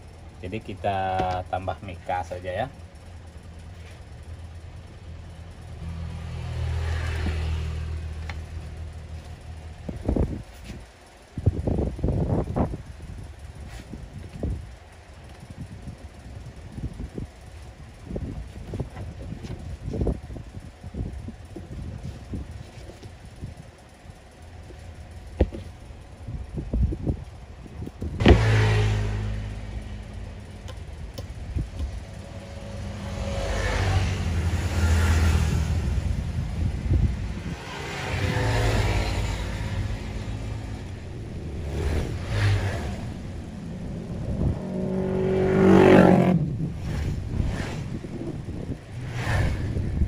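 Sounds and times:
engine revving: 5.5 - 9.3, 28.2 - 50.0.

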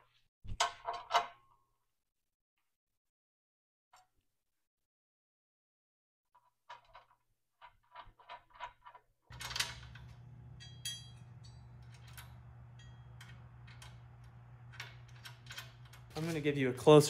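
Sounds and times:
metal bolts and washers clinking: 7.9 - 16.6
steady low hum: 9.3 - 16.8.

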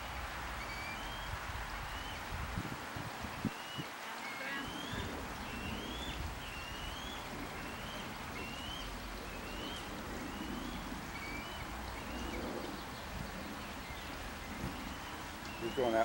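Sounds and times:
outdoor background hiss: 0.0 - 16.0
bird whistling rising note: 0.6 - 1.3, 3.5 - 12.8.

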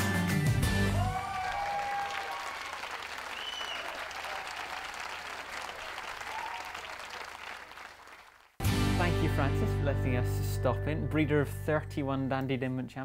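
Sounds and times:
audience clapping: 0.9 - 8.7.

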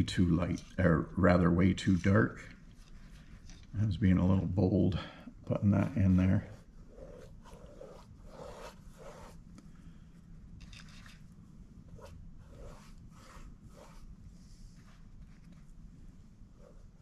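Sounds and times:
low steady hum: 0.0 - 17.0
paintbrush swishes: 5.6 - 9.4, 11.8 - 17.0.

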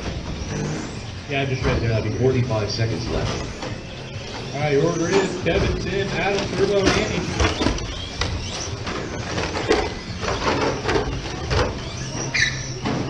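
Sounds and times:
rc car motors whining: 0.0 - 13.0
knocks and clatters: 3.0 - 13.0.

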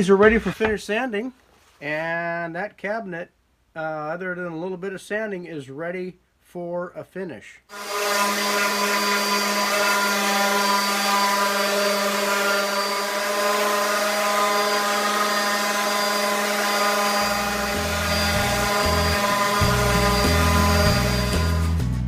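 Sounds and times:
orbital sander running: 7.7 - 21.8
low bass music: 17.3 - 22.0.

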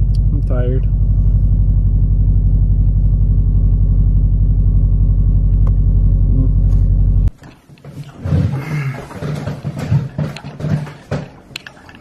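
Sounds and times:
car cabin drone: 0.0 - 7.4.

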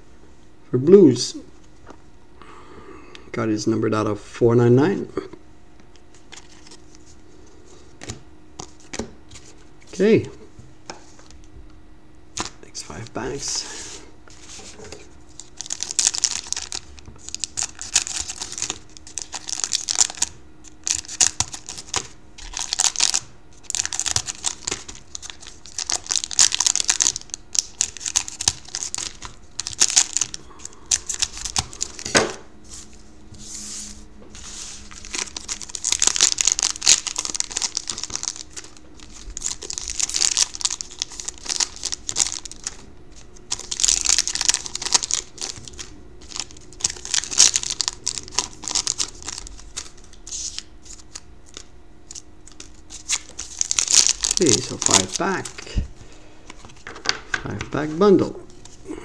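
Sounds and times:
foil wrappers crinkling: 6.1 - 7.1, 12.3 - 32.3, 34.3 - 59.0.

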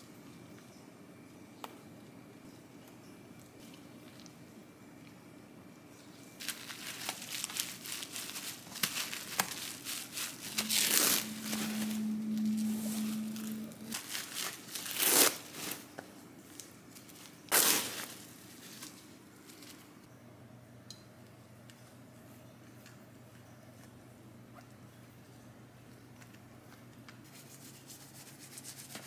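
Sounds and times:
low steady hum: 0.0 - 29.0
crinkling and rustling of seaweed sheet: 6.4 - 20.0.

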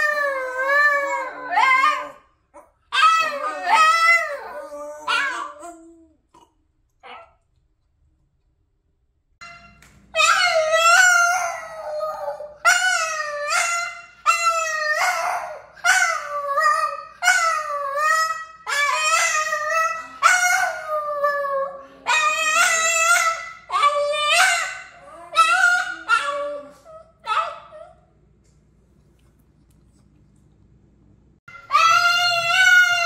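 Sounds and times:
dog howling: 0.0 - 2.2, 2.9 - 6.1, 10.2 - 27.8, 31.5 - 33.0.

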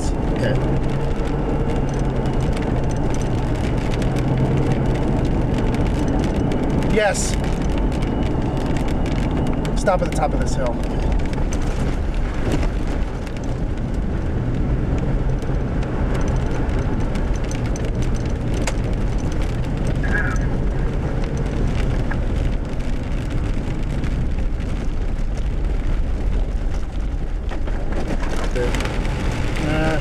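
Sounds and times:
gravel road noise: 0.0 - 30.0
vehicle engine: 0.0 - 30.0.

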